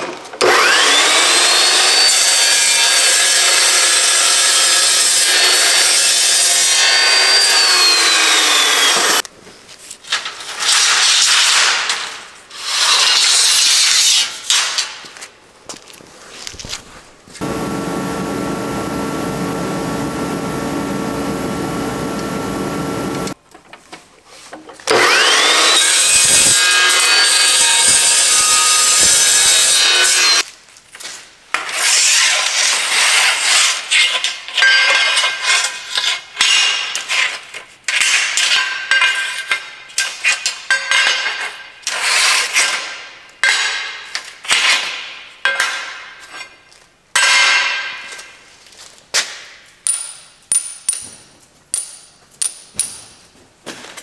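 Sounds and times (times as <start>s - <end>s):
cold saw cutting steel: 0.4s - 9.2s, 17.4s - 23.4s, 24.9s - 30.4s.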